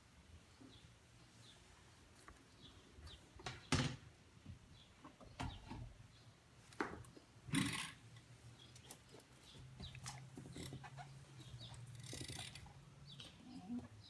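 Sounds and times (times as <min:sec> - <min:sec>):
small knocks and squeaks: 0:08.8 - 0:13.9.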